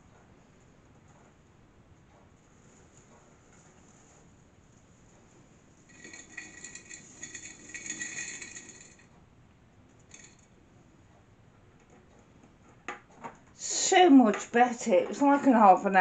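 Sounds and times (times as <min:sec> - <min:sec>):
rice grains rattling into glass jar: 0:05.9 - 0:09.0, 0:10.1 - 0:10.4.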